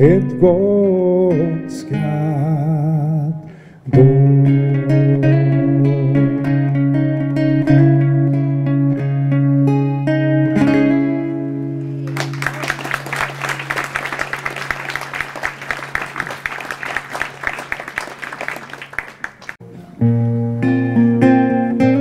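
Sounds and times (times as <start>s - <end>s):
acoustic guitar: 0.0s - 12.4s, 19.6s - 22.0s
audience applause: 12.0s - 19.6s.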